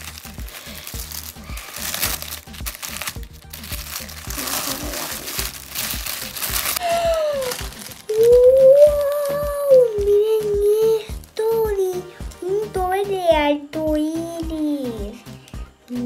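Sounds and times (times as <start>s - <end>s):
tissue paper crinkling: 0.0s - 11.6s
background music with steady beat: 0.0s - 16.0s
child exclaiming in surprise: 7.1s - 11.0s.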